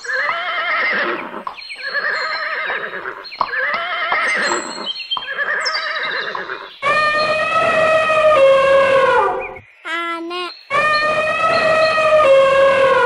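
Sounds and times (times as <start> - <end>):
horse whinnying: 0.0 - 9.6, 10.7 - 13.0
elephant trumpeting: 5.4 - 9.6, 10.7 - 13.0.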